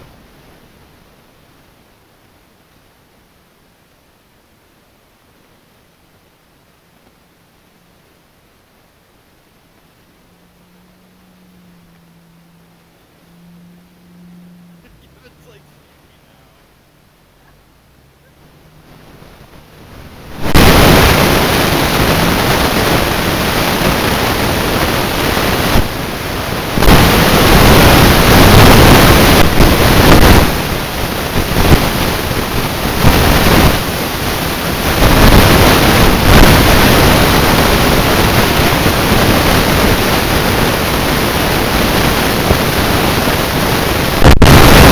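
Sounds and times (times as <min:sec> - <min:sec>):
strong wind buffeting microphone: 0:18.4 - 0:44.9.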